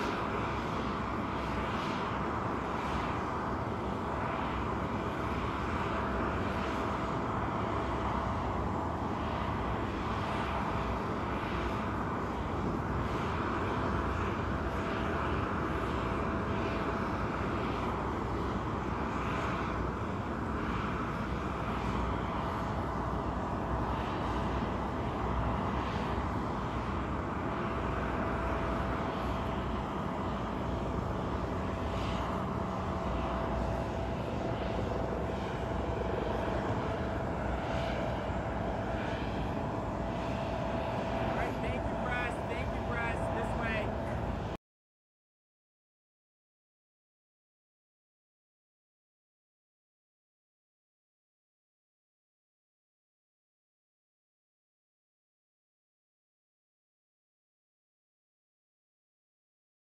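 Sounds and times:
jet airliner whine and rumble: 0.0s - 44.6s.

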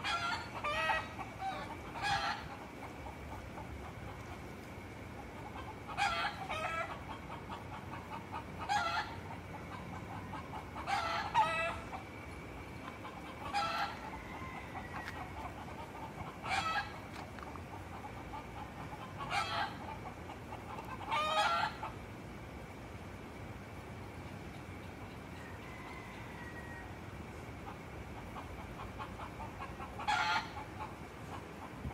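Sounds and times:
roosters crowing: 0.0s - 3.4s, 5.5s - 22.0s, 25.1s - 27.8s, 28.8s - 30.7s.

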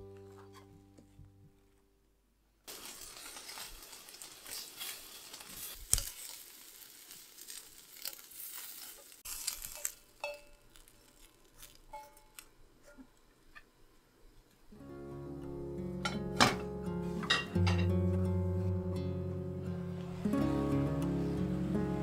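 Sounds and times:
meat sizzling in a pan: 2.7s - 11.8s.

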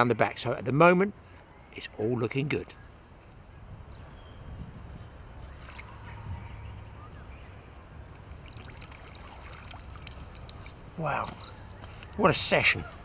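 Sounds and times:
river water running: 5.2s - 13.0s
small water splashes: 5.5s - 6.0s, 8.1s - 12.0s.

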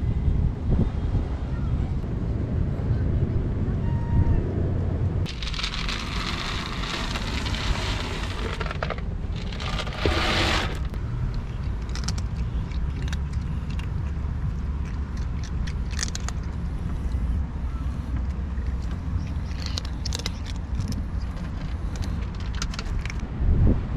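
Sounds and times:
low rumble: 0.0s - 23.9s
short scraping burst: 5.3s - 11.0s
cats crunching dry kibble: 5.3s - 17.4s, 18.1s - 23.3s.

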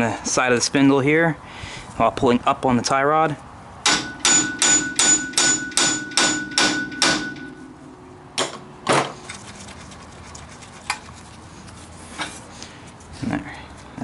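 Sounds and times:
hammer striking metal: 3.8s - 7.7s.

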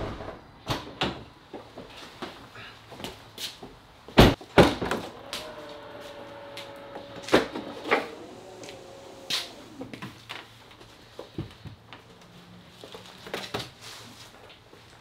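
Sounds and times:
tailgate motor whine: 4.6s - 10.2s.

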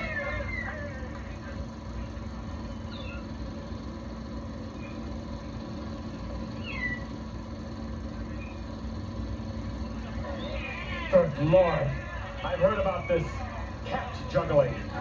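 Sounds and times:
cats meowing: 0.0s - 1.2s, 10.3s - 11.4s
steady low hum: 0.0s - 15.0s.

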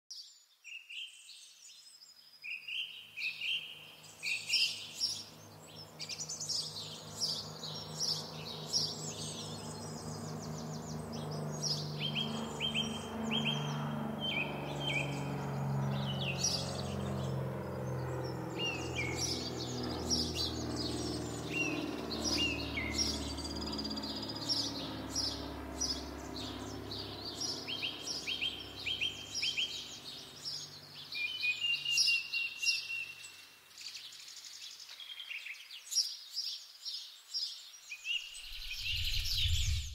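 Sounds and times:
songbirds chirping and trilling: 0.1s - 39.9s
low sustained hum: 38.4s - 39.9s.

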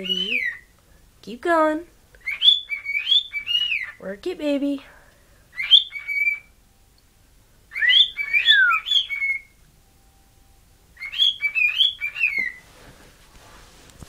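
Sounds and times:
cockatiel whistling a tune: 0.0s - 0.7s, 2.2s - 4.0s, 5.5s - 6.5s, 7.7s - 9.6s, 11.0s - 12.6s.

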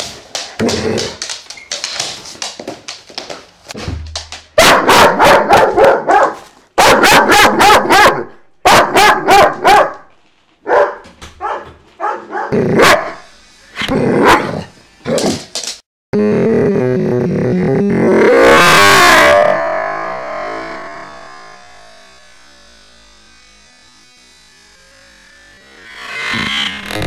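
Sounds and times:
dog barking loudly: 4.6s - 10.0s, 10.6s - 13.2s.

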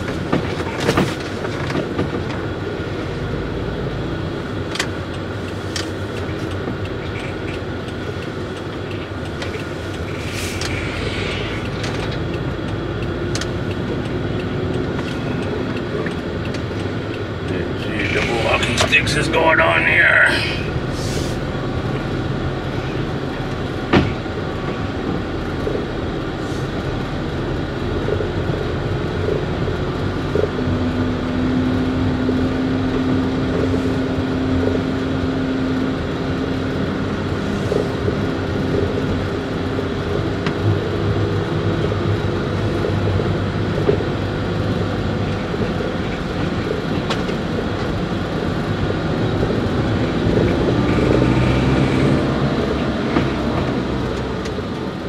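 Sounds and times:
vehicle running noise: 0.0s - 55.0s.

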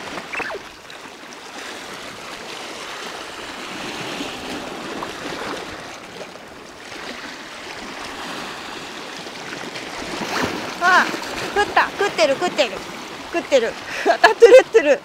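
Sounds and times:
surf washing over rocks: 0.0s - 15.0s
short falling squeal: 0.3s - 0.7s.

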